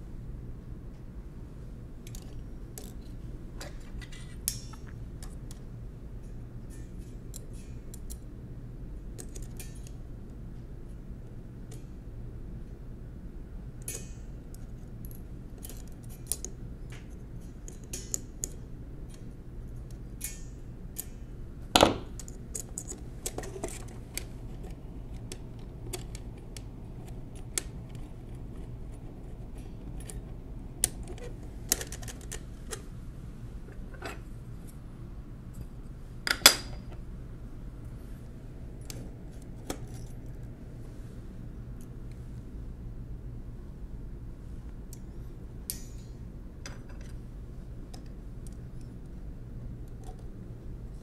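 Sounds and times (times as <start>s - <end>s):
small metallic clicks and clinks: 9.2s - 10.0s, 13.8s - 21.2s, 38.8s - 40.4s, 45.7s - 47.2s.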